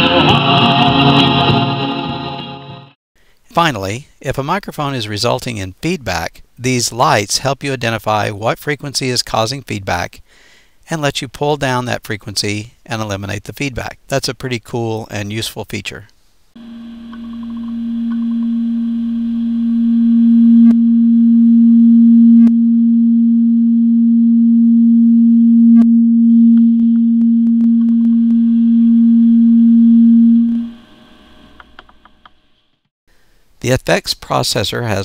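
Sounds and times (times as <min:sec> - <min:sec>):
low-pitched microphone feedback tone: 0:16.6 - 0:30.8.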